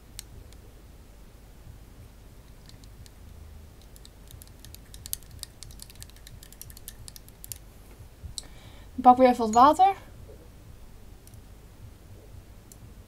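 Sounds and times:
light sharp clicks and taps: 0:02.4 - 0:08.5.

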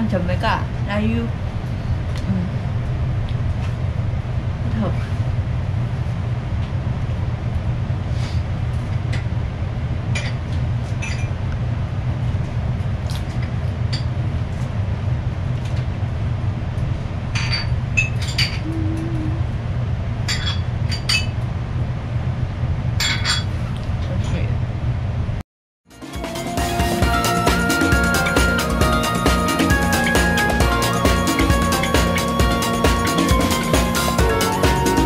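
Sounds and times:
low hum: 0:00.0 - 0:25.4.

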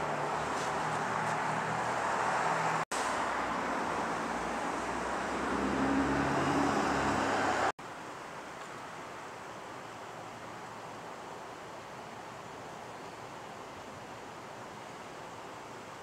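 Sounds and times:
low engine hum: 0:00.0 - 0:07.8
passing vehicles rushing: 0:00.0 - 0:07.8.

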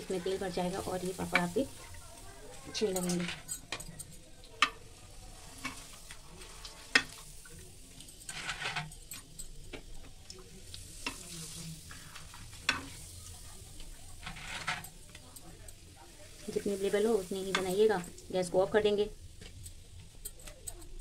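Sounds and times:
papad sizzling in hot oil: 0:00.0 - 0:21.0
tongs clicking against pan: 0:02.7 - 0:04.9, 0:05.5 - 0:11.3, 0:17.4 - 0:18.3, 0:19.3 - 0:21.0.

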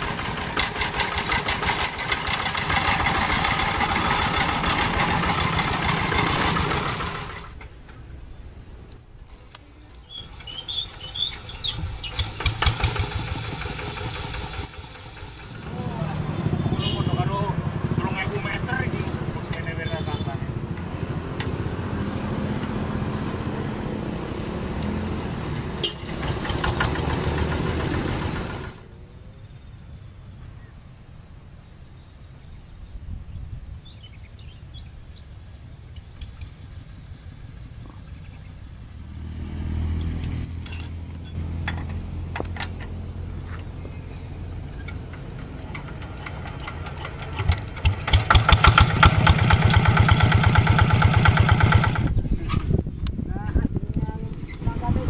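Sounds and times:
diesel engine chugging: 0:00.0 - 0:07.6, 0:10.2 - 0:20.9, 0:25.8 - 0:28.9, 0:41.5 - 0:52.3.

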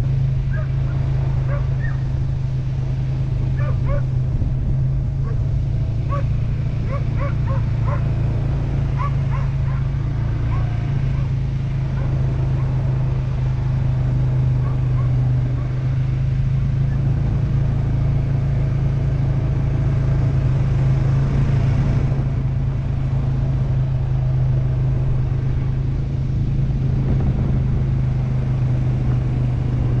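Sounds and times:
atv engine droning: 0:00.0 - 0:30.0
rumble of riding over dirt: 0:00.0 - 0:30.0.

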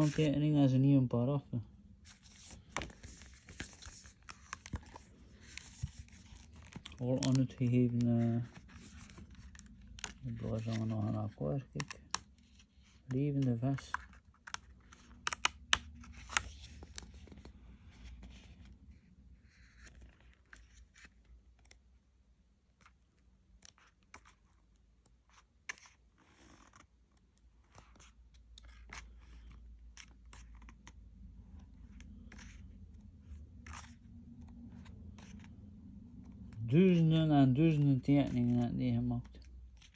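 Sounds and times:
paper rustling: 0:00.0 - 0:00.4, 0:02.0 - 0:21.8
book pages turning: 0:00.0 - 0:00.8, 0:02.0 - 0:22.1, 0:22.7 - 0:39.9.

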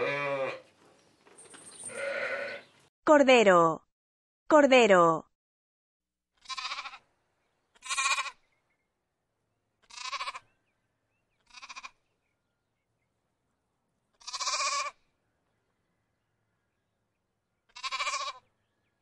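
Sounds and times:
lamb bleating: 0:00.0 - 0:00.6, 0:01.9 - 0:02.7, 0:06.4 - 0:07.0, 0:07.8 - 0:08.4, 0:09.8 - 0:10.5, 0:11.4 - 0:12.0, 0:14.2 - 0:15.0, 0:17.7 - 0:18.5.

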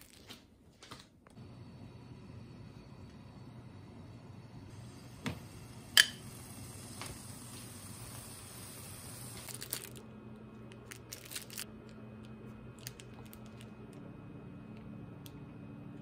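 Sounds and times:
food sizzling in a frying pan: 0:04.7 - 0:09.8.

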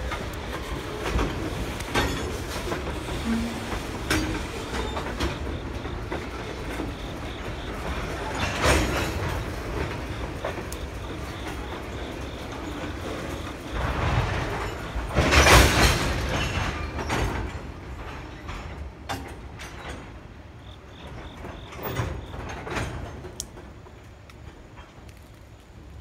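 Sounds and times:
train cars clanking: 0:00.0 - 0:26.0
train wheels rumbling on rails: 0:00.0 - 0:26.0.

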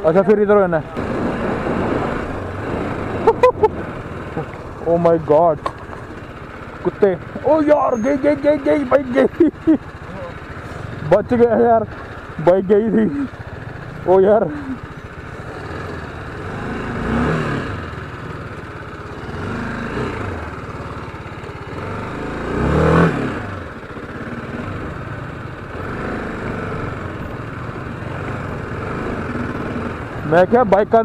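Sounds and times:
motorcycle engine revving: 0:00.0 - 0:31.0.

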